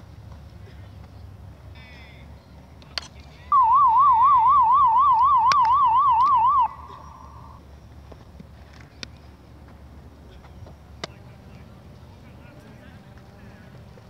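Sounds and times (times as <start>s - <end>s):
warbling electronic siren: 3.5s - 7.6s
faint steady tone: 3.5s - 8.0s.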